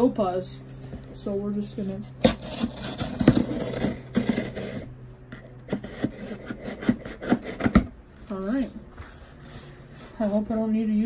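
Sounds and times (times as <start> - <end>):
knife scraping cardboard: 1.9 - 4.9, 5.6 - 9.8.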